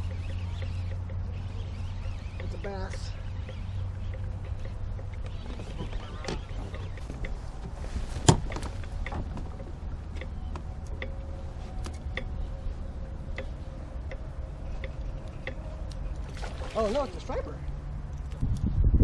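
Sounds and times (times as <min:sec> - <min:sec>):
fishing reel ticking: 0:00.0 - 0:05.4
low rumble: 0:00.0 - 0:19.0.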